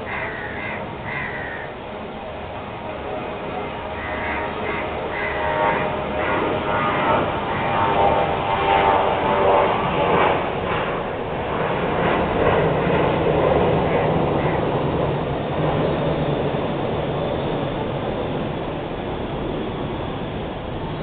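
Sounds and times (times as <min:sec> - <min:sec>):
city street traffic: 0:00.0 - 0:08.4.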